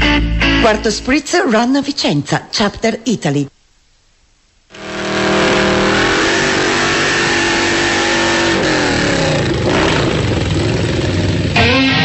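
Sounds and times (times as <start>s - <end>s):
motorcycle engine revving high: 4.7s - 12.0s.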